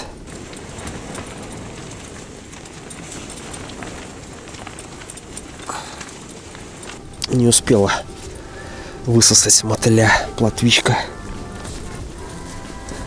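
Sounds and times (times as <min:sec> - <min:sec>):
faint ticks: 0:00.0 - 0:09.1
strong wind against tent: 0:00.0 - 0:13.0.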